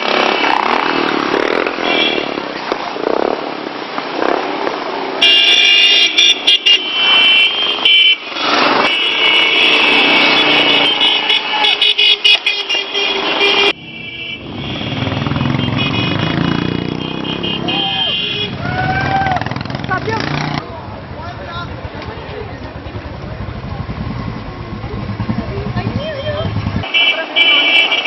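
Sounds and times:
motorcycle horns honking: 0.0 - 2.5, 5.2 - 20.6, 24.7 - 28.0
motorcycle engine rumble: 13.3 - 26.9.

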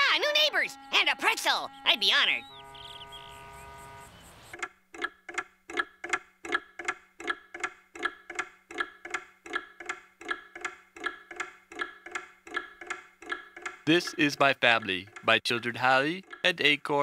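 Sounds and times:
clock ticking: 4.5 - 17.0.

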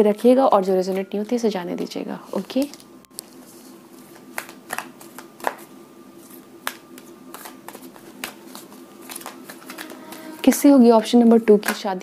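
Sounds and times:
faint steady hum: 0.0 - 12.0
cards being shuffled: 2.3 - 10.7.

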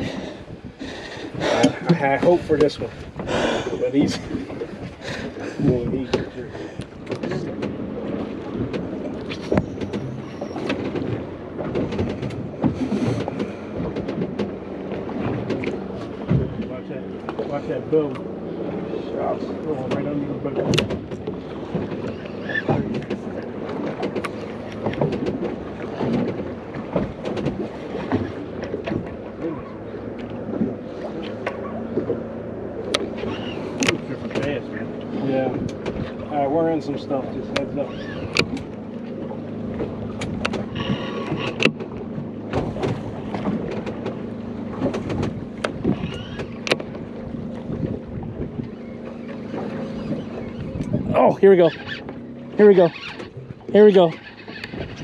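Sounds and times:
wind buffeting the microphone: 0.0 - 32.2, 33.0 - 52.8
water lapping against boat hull: 0.0 - 55.0
sharp clicks and knocks: 19.8 - 22.1, 22.7 - 29.1, 33.8 - 34.5, 40.2 - 44.2, 44.8 - 46.9.

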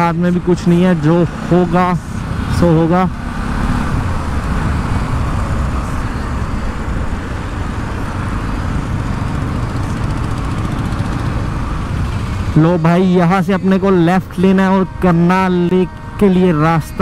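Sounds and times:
motorcycle engine cruising: 0.0 - 17.0
wind rush on microphone: 2.1 - 12.6.

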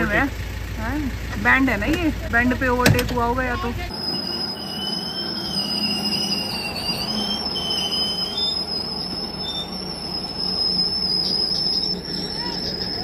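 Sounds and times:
low mechanical rumble: 0.0 - 13.0
winch whine: 0.0 - 13.0
wavering squealing tone: 3.5 - 13.0.

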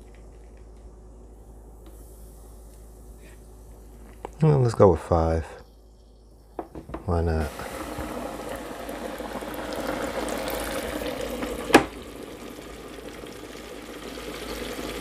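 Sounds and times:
oil bubbling in deep fryer: 7.4 - 15.0
fryer lid clacking shut: 11.6 - 12.0.

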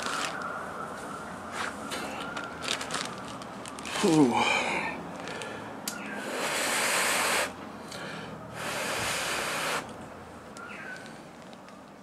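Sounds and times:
long even hisses: 6.2 - 10.0.

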